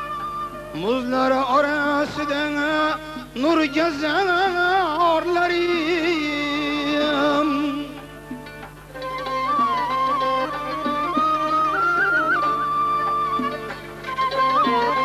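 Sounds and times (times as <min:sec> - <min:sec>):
lute accompaniment: 0:00.0 - 0:15.0
man singing folk vocal: 0:00.7 - 0:08.3.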